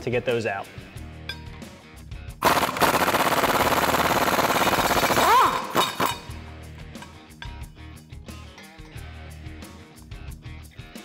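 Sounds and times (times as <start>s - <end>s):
impact gun hammering: 2.4s - 6.4s.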